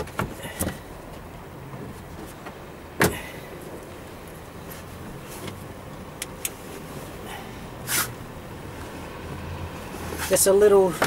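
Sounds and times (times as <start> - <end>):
short scrape: 7.9 - 8.2.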